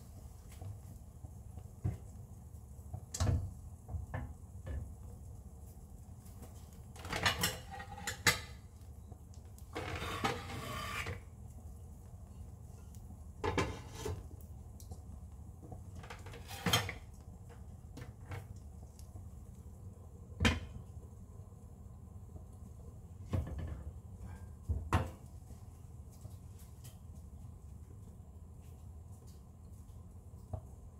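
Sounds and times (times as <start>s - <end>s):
dishes and utensils clinking: 7.0s - 8.6s
rustling scrape: 9.7s - 11.2s, 13.6s - 14.2s.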